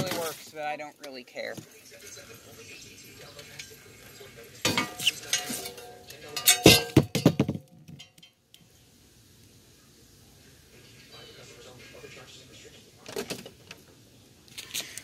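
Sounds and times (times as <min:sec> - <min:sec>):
metal frame clattering and clanking: 0:04.7 - 0:08.3.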